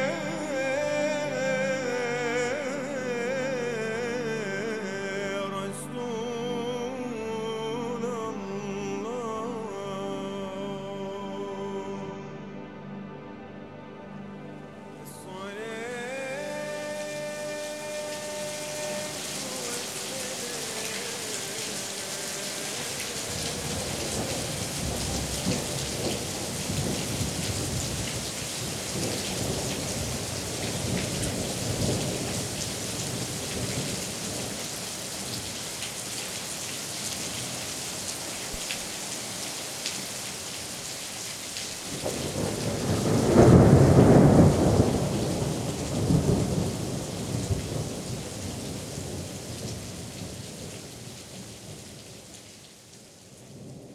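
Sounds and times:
steady rain: 0:00.0 - 0:09.7, 0:15.4 - 0:53.9
thunder rolling: 0:22.6 - 0:34.5, 0:41.9 - 0:50.7.

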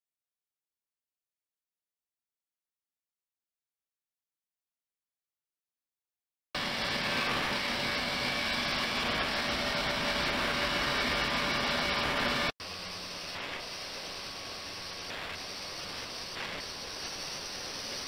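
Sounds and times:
ultrasonic tank hissing: 0:06.6 - 0:18.0
faint steady tones: 0:06.7 - 0:18.0.

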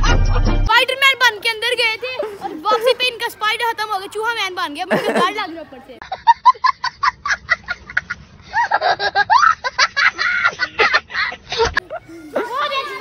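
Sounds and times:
child laughing hysterically: 0:07.1 - 0:13.0.

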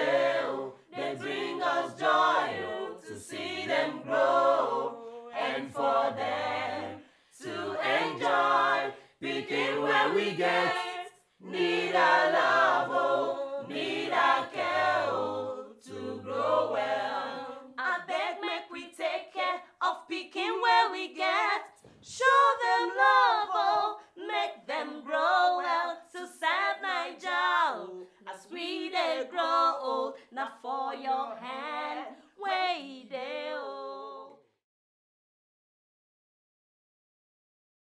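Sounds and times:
unaccompanied choir singing: 0:00.0 - 0:34.4.

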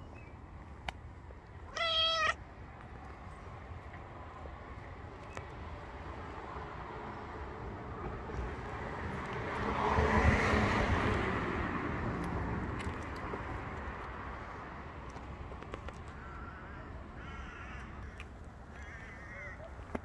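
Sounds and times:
car passing by: 0:06.2 - 0:14.7.

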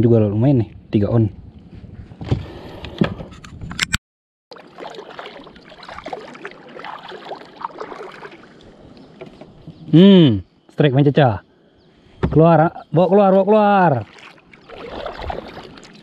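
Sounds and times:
water splashing against paddle: 0:04.5 - 0:08.8, 0:13.3 - 0:16.0.

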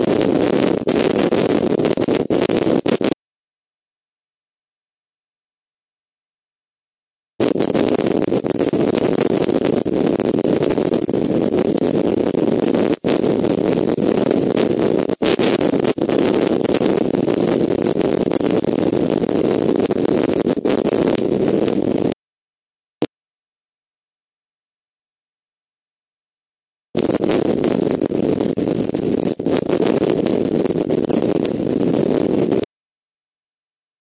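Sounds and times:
steady rushing noise: 0:00.0 - 0:03.2, 0:07.4 - 0:22.2, 0:27.0 - 0:32.7.

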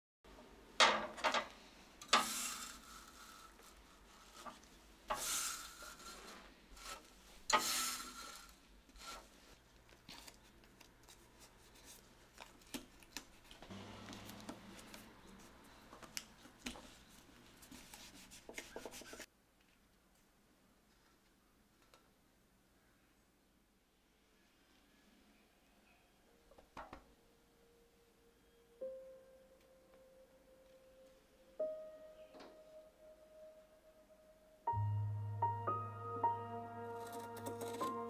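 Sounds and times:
brush sweeping silk: 0:02.2 - 0:09.6.

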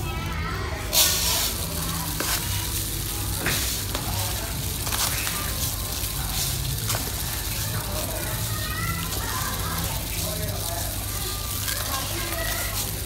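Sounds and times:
sand pouring hiss: 0:00.9 - 0:11.1.

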